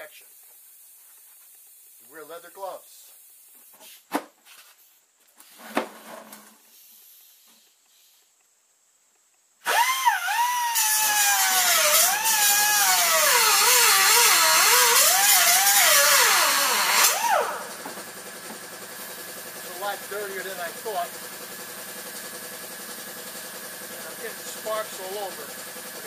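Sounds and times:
grinder cutting steel: 9.6 - 18.6, 19.6 - 26.0.

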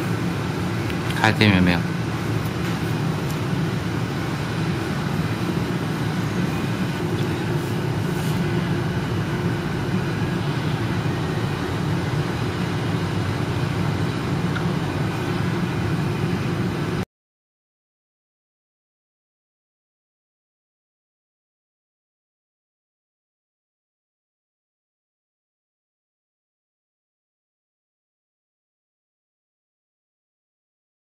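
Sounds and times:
low background hum and rumble: 0.0 - 17.1.

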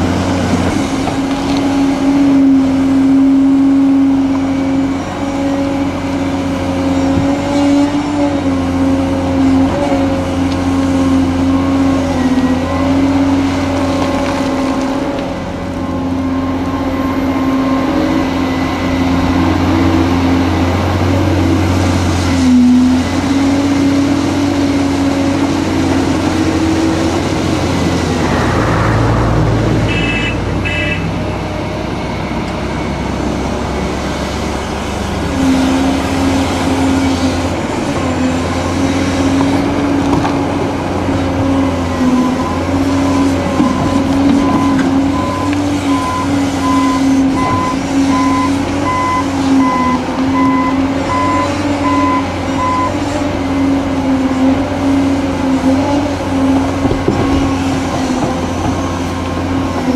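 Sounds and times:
heavy diesel engines running: 0.0 - 59.9
reversing alarm beeping: 28.2 - 31.2, 42.0 - 53.6.

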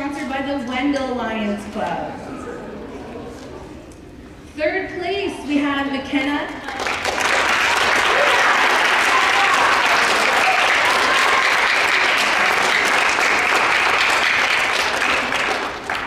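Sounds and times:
audience applauding: 6.6 - 16.0.

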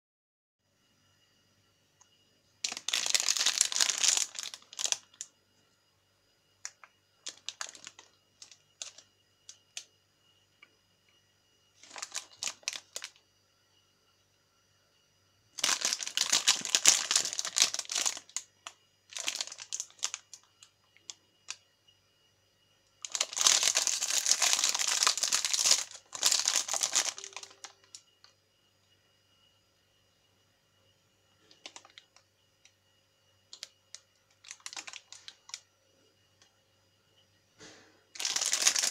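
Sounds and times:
plastic snack wrapper crinkling: 2.6 - 5.3, 6.6 - 9.9, 11.8 - 13.2, 15.6 - 21.6, 23.0 - 28.0, 31.5 - 32.2, 33.5 - 35.6, 38.2 - 38.9.

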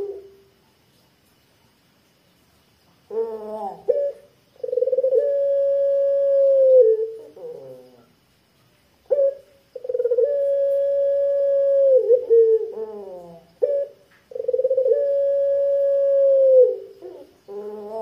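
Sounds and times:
dove cooing: 0.0 - 0.4, 3.1 - 8.1, 9.1 - 18.0.

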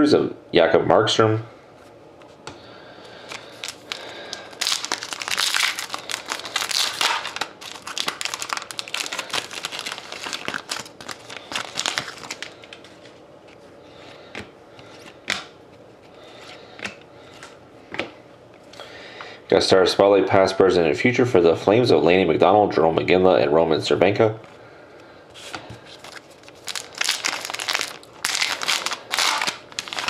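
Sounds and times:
foil wrapper crinkling and tearing: 3.2 - 13.1, 25.9 - 30.0
cards rustling: 3.2 - 15.5, 25.4 - 30.0.

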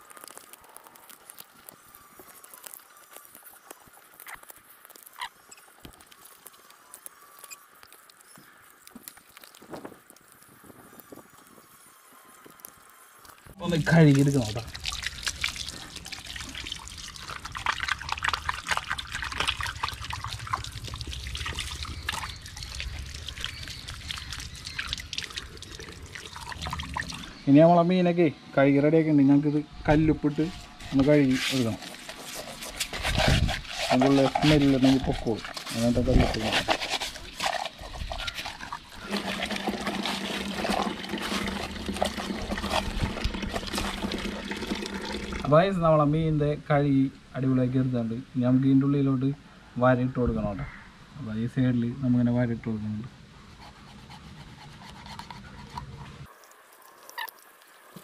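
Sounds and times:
water trickling and splashing: 13.1 - 27.4, 30.7 - 45.8
low steady hum: 13.5 - 56.3.

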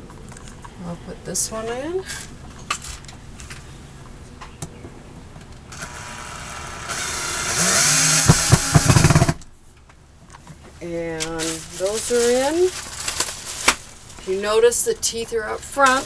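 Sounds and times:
power drill driving a screw: 5.7 - 9.4.

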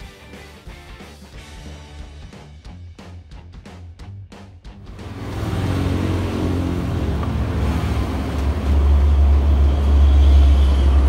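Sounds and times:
vehicle engine running: 4.8 - 11.0.

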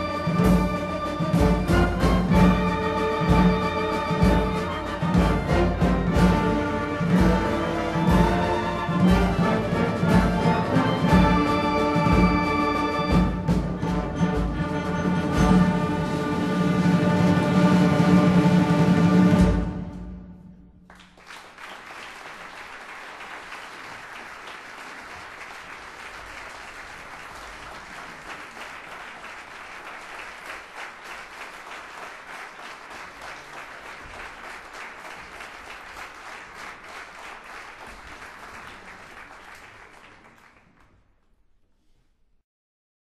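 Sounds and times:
audience applauding: 20.8 - 41.3.

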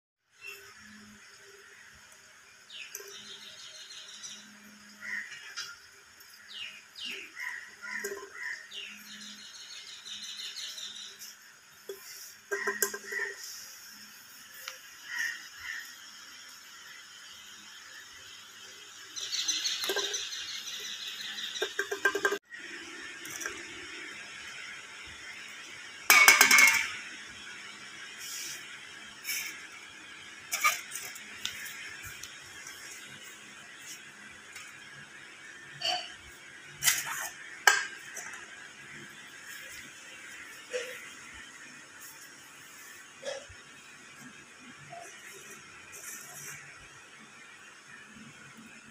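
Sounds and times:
can tapping and scraping: 11.9 - 13.5, 21.6 - 22.4
drink can clattering on tile: 26.1 - 27.0.

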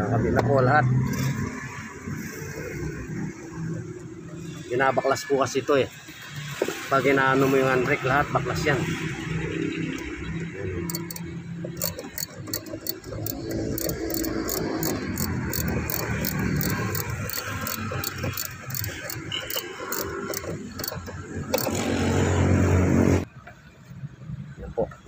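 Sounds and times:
engine rumbling: 7.2 - 23.3
socket ratchet clicking: 10.9 - 21.8.

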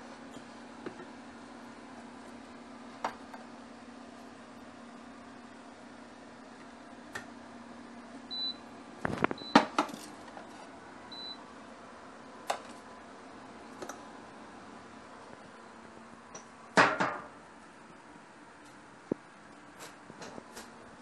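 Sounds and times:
kitchenware clicks and knocks: 16.8 - 17.3.

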